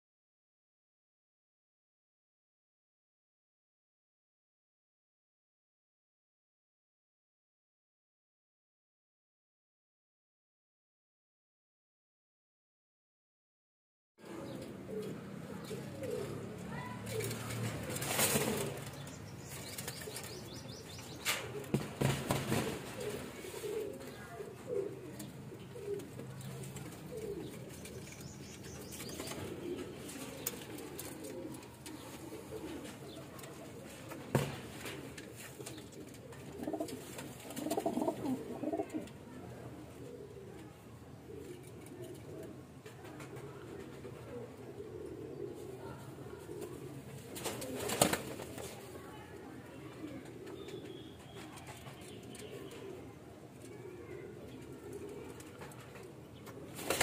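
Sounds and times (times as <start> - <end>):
pigeons cooing: 14.2 - 57.0
wing flaps: 17.2 - 20.3.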